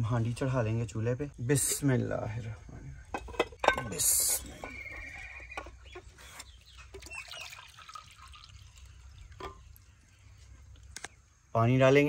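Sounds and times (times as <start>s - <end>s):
water trickling into a bowl: 5.6s - 11.4s.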